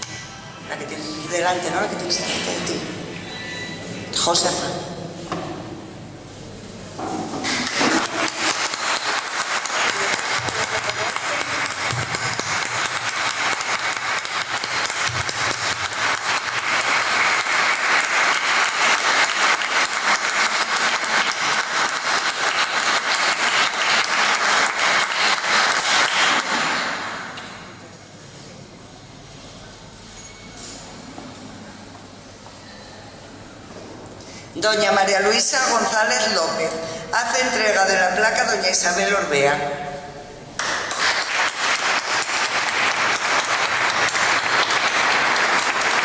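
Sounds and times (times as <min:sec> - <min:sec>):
audience applauding: 0:07.6 - 0:27.3, 0:40.6 - 0:46.0.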